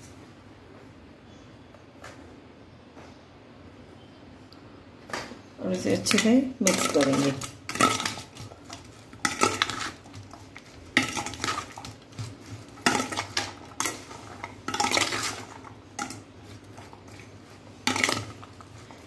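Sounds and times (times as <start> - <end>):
metal spoon scraping steel bowl: 6.1 - 19.0.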